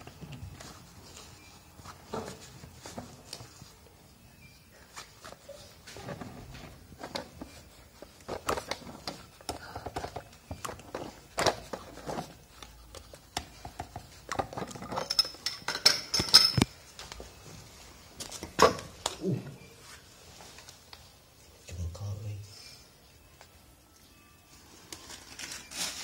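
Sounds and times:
metal pipe fittings clicking and knocking: 13.4s - 16.7s.

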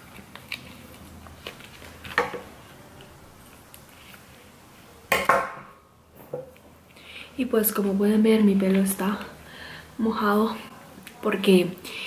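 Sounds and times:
packet crinkling: 0.0s - 2.2s.

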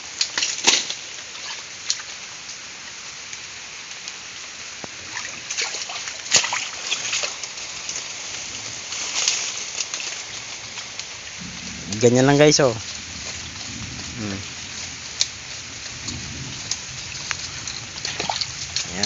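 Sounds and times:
feet wading through water: 5.1s - 8.1s, 14.6s - 19.0s.

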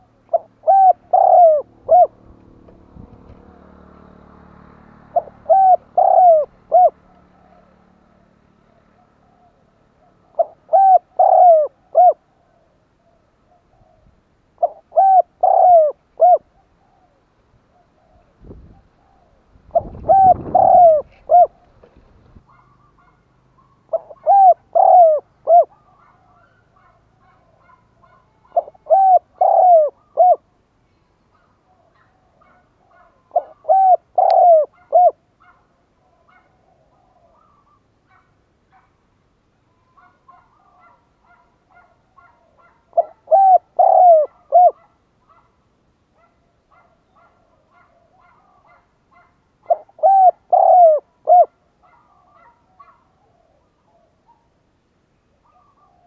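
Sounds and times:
dove cooing: 0.0s - 30.6s, 31.3s - 38.9s, 39.6s - 45.5s, 46.2s - 54.5s, 55.3s - 56.0s
faint bird chirps: 55.4s - 56.0s.

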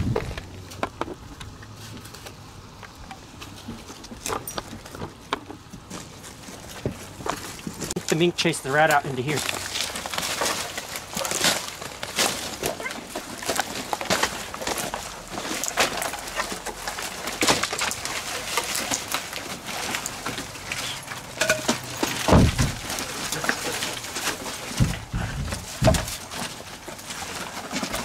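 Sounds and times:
wood cracking and knocking: 2.8s - 8.2s, 8.8s - 28.0s
heavy wooden thud: 22.3s - 22.9s, 24.8s - 26.2s.

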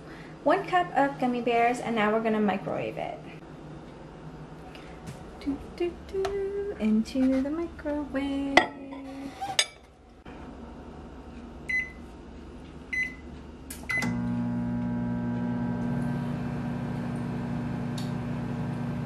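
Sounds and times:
microwave oven humming: 3.4s - 19.0s
microwave keypad beeps: 11.7s - 12.0s, 12.9s - 13.2s.

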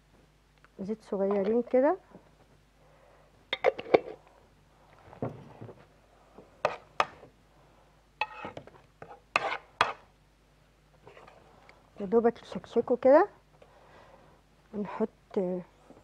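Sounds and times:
metal spoon scraping frying pan: 8.2s - 10.1s.

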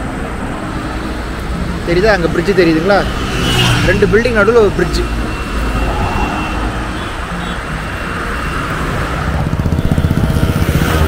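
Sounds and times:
car passing by: 3.1s - 9.4s
rapid low fluttering: 5.3s - 8.0s.

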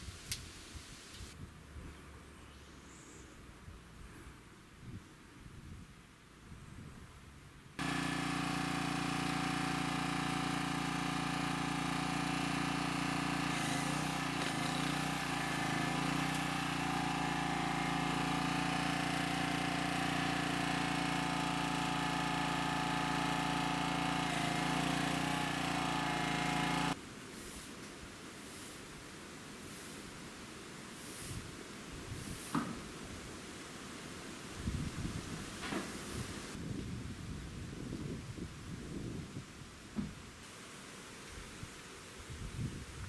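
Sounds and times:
power drill running against wood: 7.8s - 27.0s.

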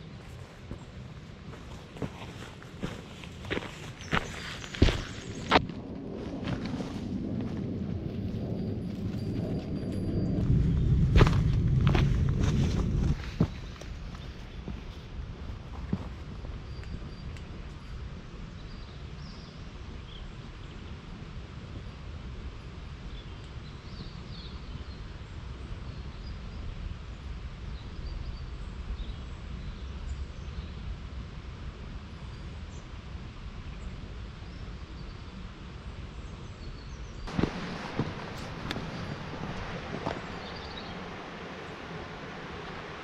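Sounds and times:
steady low rush: 0.0s - 18.6s, 37.3s - 43.0s.

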